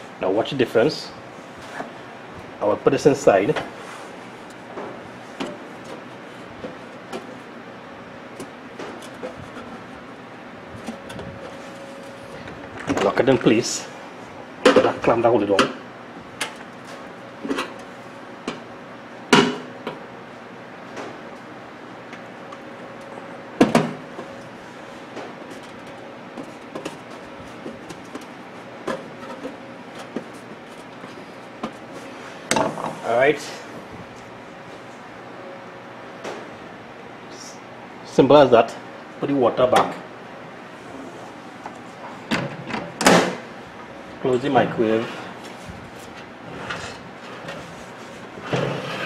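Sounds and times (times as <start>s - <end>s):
steady background hiss: 26.1s - 49.0s.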